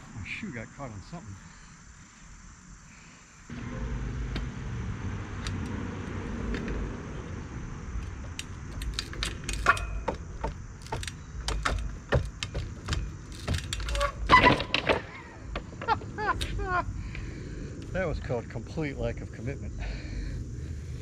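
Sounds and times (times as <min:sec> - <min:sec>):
bike clicks and knocks on wood: 0:04.3 - 0:04.5, 0:05.4 - 0:16.7.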